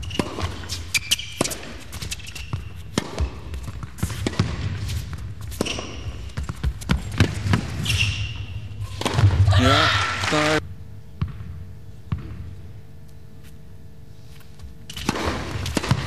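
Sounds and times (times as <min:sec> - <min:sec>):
shoe squeaks: 0:00.0 - 0:04.2, 0:05.4 - 0:06.5, 0:07.7 - 0:09.0
low hall hum: 0:00.0 - 0:16.0
racket hitting ball: 0:00.1 - 0:01.9, 0:02.9 - 0:07.9, 0:08.8 - 0:10.6, 0:14.9 - 0:16.0.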